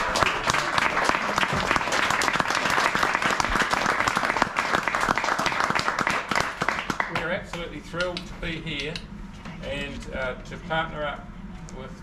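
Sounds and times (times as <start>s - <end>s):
crowd applauding: 0.0s - 7.6s.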